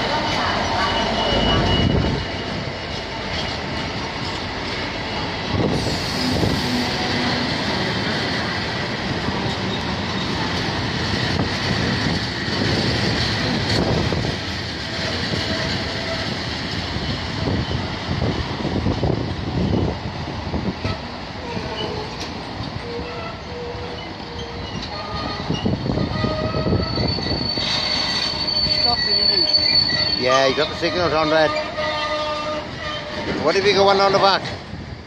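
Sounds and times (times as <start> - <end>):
freight train rumbling: 0.0 - 35.0
faint high wheel squeal: 22.8 - 31.8.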